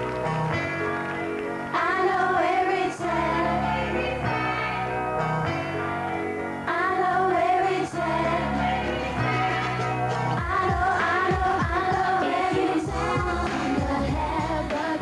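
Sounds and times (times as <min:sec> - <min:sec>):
backing track with bass: 0:00.0 - 0:02.0, 0:03.0 - 0:06.8, 0:07.9 - 0:15.0
women singing pop song: 0:01.7 - 0:05.0, 0:06.6 - 0:15.0.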